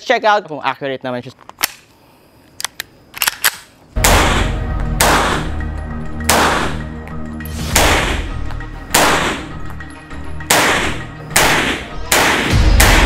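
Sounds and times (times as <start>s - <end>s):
pistol shots ringing indoors: 3.4s - 5.5s, 6.2s - 6.8s, 8.9s - 9.5s, 10.4s - 13.0s
background music: 4.0s - 13.0s.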